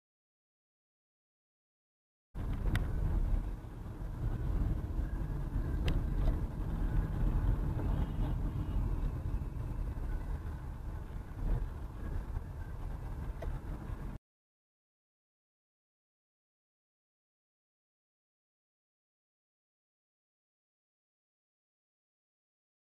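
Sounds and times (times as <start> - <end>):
car engine and tyres rumbling: 2.4 - 14.2.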